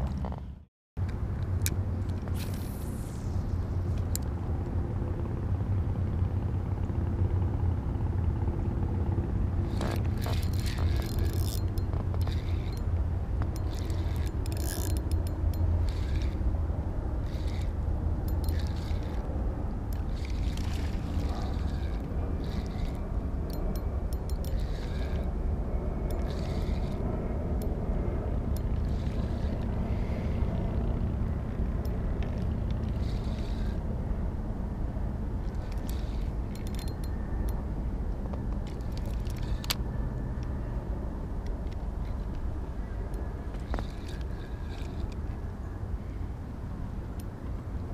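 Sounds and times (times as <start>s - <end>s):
steady low rumble: 0.0s - 47.9s
paddle and fishing gear clicks: 9.7s - 16.4s, 17.2s - 19.3s, 19.9s - 25.3s, 35.4s - 37.2s, 38.3s - 39.8s, 41.4s - 45.4s.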